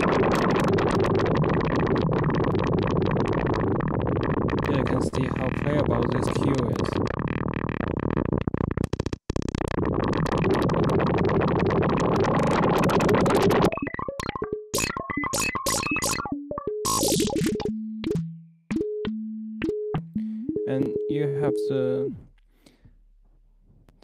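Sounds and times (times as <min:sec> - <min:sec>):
synthesizer clicking texture: 0:00.0 - 0:21.9
long held synthesizer tones: 0:00.0 - 0:22.3
short pitched synthesizer notes: 0:00.0 - 0:22.3.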